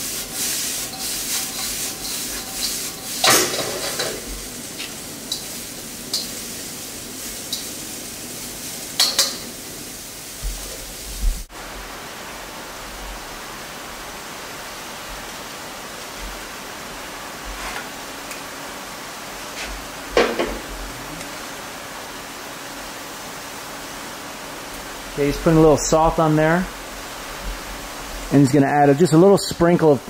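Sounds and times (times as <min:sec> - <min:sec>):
steady kitchen hiss: 0:00.0 - 0:30.0
vegetables sizzling in oil: 0:00.0 - 0:30.0
metal tongs clinking on pan: 0:06.1 - 0:06.4, 0:09.0 - 0:09.5.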